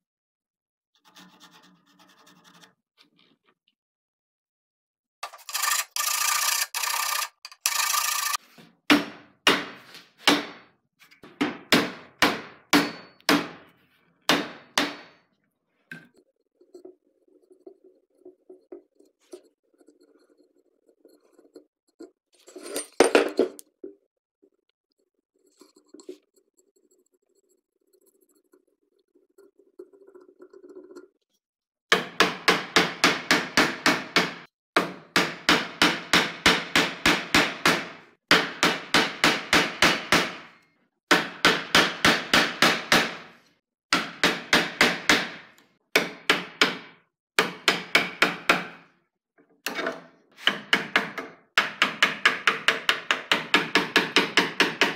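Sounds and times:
sharp strikes on wood: 0:08.9 - 0:10.7, 0:11.4 - 0:13.6, 0:14.3 - 0:15.2
tools clattering: 0:22.4 - 0:23.7.

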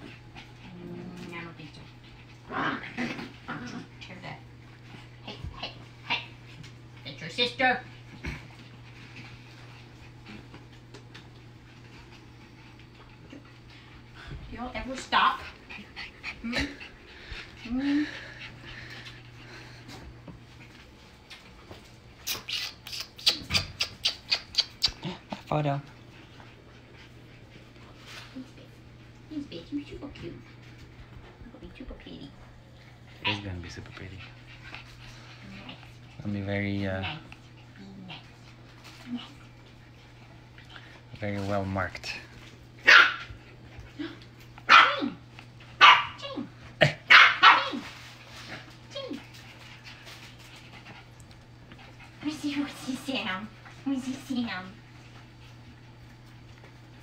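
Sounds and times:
puppies barking: 0:42.8 - 0:43.4, 0:44.7 - 0:45.2, 0:45.8 - 0:46.2, 0:46.9 - 0:47.8.

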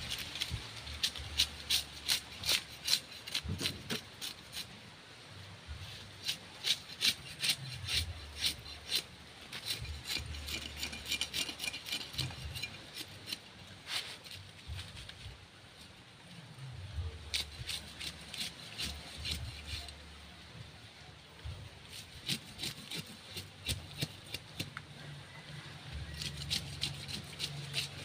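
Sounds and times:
knife scraping fish scales: 0:00.1 - 0:04.7, 0:06.2 - 0:14.4, 0:17.3 - 0:20.0, 0:21.9 - 0:24.7, 0:26.1 - 0:28.0.

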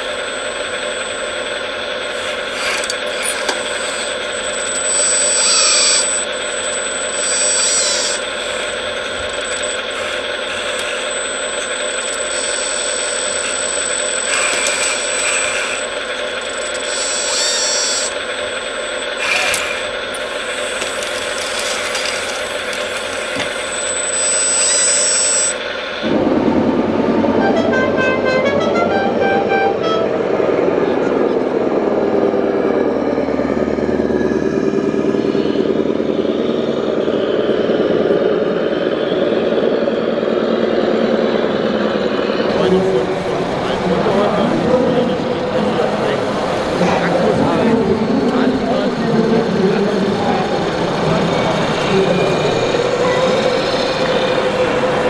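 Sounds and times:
electric motors and gears whining: 0:00.0 - 0:55.0
short beeps: 0:02.2 - 0:25.7
busy exhibition hall din: 0:19.2 - 0:32.1, 0:42.4 - 0:55.0.

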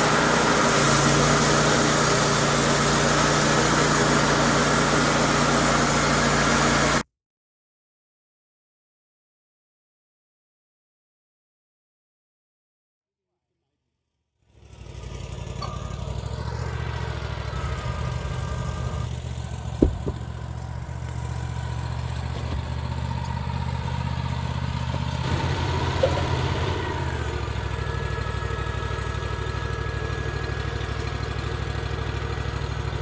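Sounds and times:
sawmill engine idling: 0:00.0 - 0:07.0, 0:14.6 - 0:33.0
sharp knock: 0:19.8 - 0:20.2.

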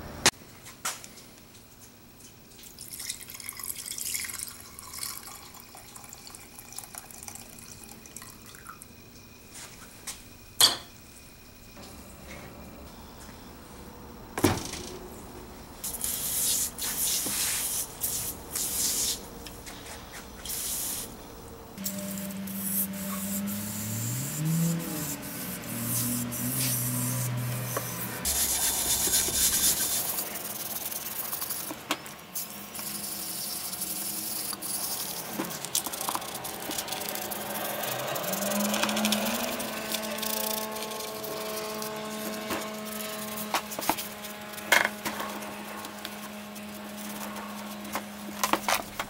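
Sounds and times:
low hum: 0:10.3 - 0:16.1, 0:17.8 - 0:30.2
hissing air bursts: 0:15.8 - 0:21.2, 0:21.8 - 0:31.8, 0:32.4 - 0:38.3
brush scrubbing wet metal: 0:22.4 - 0:31.7, 0:32.5 - 0:38.6, 0:39.9 - 0:48.7.

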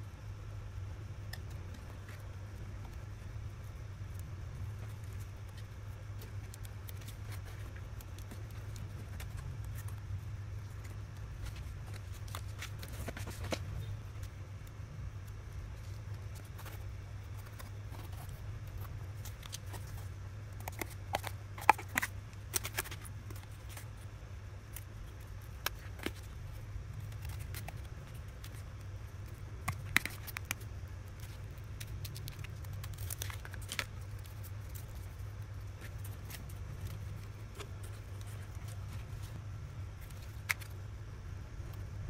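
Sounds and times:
steady low hum: 0:00.0 - 0:42.0
cardboard rustling: 0:04.7 - 0:14.3.

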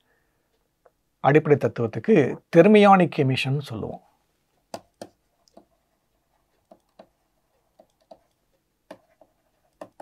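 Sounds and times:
stylus tapping on tablet screen: 0:04.6 - 0:05.8, 0:06.4 - 0:10.0.

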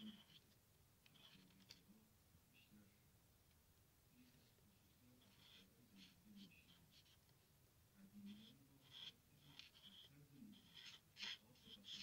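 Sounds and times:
marker scratching on paper: 0:00.0 - 0:00.5, 0:01.1 - 0:01.8, 0:05.2 - 0:07.4, 0:08.2 - 0:12.0.

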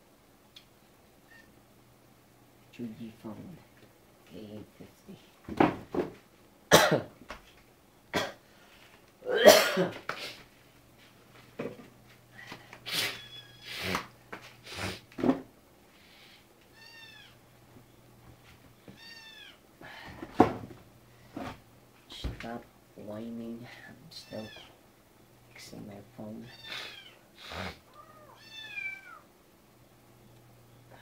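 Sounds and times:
cat meowing: 0:16.7 - 0:17.4, 0:19.0 - 0:19.6, 0:27.9 - 0:29.3.

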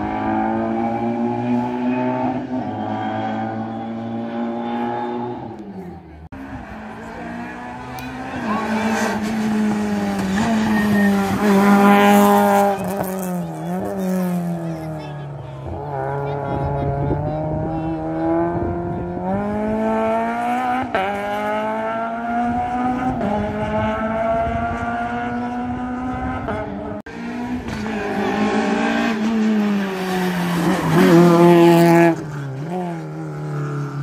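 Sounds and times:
race car engine revving: 0:00.0 - 0:34.0
tyre squeal: 0:08.2 - 0:13.9.

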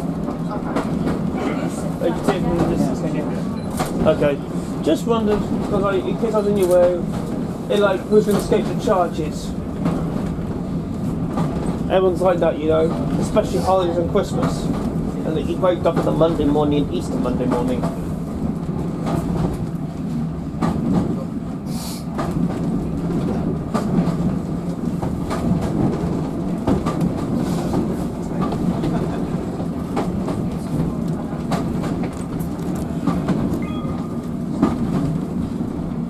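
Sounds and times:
train wheels rumbling on rail: 0:00.0 - 0:36.0
brief hiss: 0:21.7 - 0:22.1.

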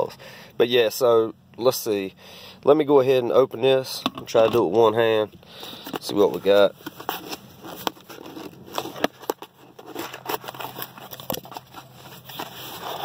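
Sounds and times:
cardboard box being opened: 0:05.8 - 0:13.0.

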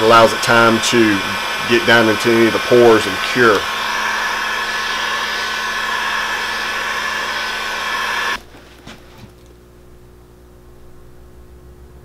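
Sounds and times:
heat gun blowing with whine: 0:00.0 - 0:09.3.

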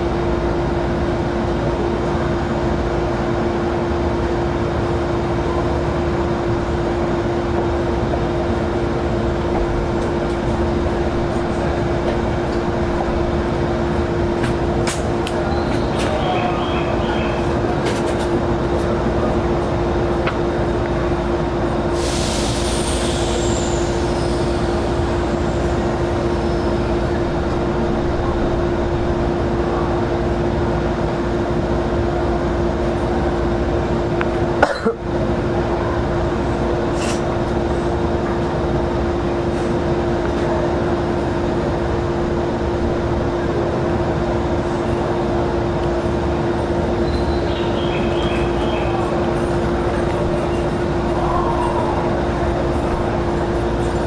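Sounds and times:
steady hum: 0:00.0 - 0:54.0
train wheels rumbling on rail: 0:00.0 - 0:54.0
high whine falling in pitch: 0:50.2 - 0:53.8.

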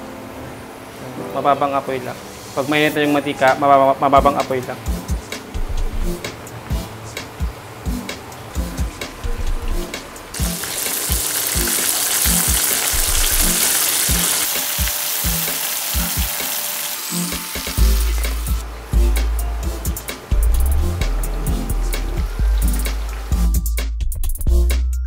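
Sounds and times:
background music with a beat: 0:04.2 - 0:25.0
chicken deep-frying in oil: 0:09.7 - 0:18.6, 0:21.4 - 0:23.5.

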